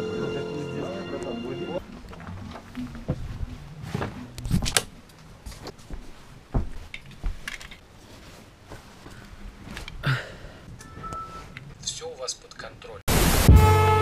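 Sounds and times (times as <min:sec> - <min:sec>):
footsteps on plank floor: 0:02.0 - 0:04.3, 0:05.2 - 0:10.0.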